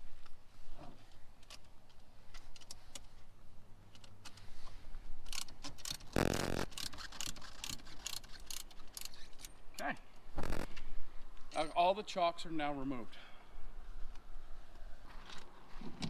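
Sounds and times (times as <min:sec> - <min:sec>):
wrench metal clicks and clinks: 0:05.2 - 0:06.1, 0:06.7 - 0:09.5.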